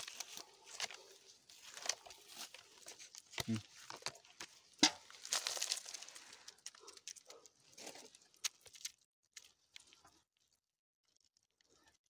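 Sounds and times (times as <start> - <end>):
bamboo basket rustling: 0.0 - 8.9.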